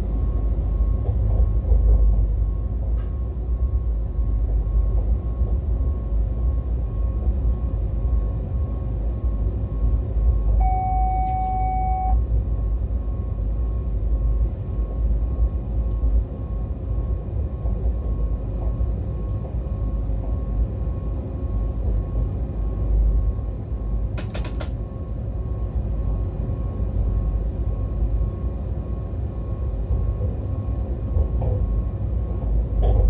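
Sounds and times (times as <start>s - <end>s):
faint steady whine: 2.3s - 33.0s
sharp clicks: 24.2s - 24.8s
train wheels rumbling: 24.2s - 24.8s.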